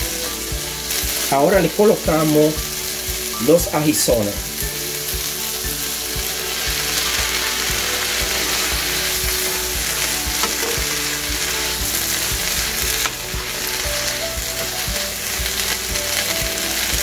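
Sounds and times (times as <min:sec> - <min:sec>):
vegetables sizzling in a frying pan: 0:00.0 - 0:17.0
wooden spoon stirring in a pan: 0:05.2 - 0:17.0.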